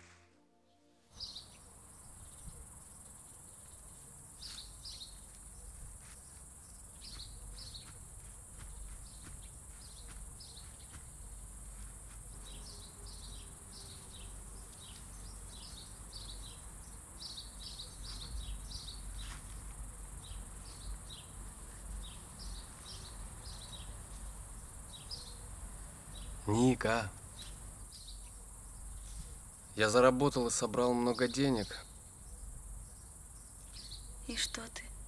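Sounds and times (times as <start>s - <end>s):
birds chirping: 1.1s - 34.9s
insects trilling: 1.2s - 35.0s.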